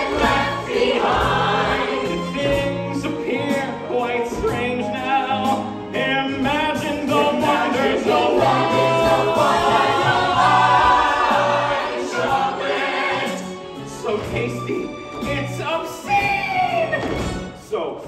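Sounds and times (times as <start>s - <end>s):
voices singing together: 0.0s - 14.4s.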